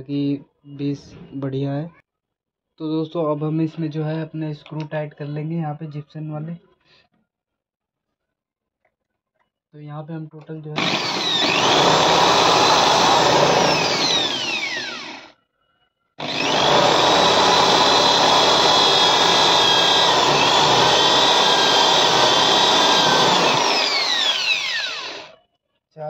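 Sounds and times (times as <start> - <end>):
electric drill driving screws: 10.8 - 15.3, 16.2 - 25.3.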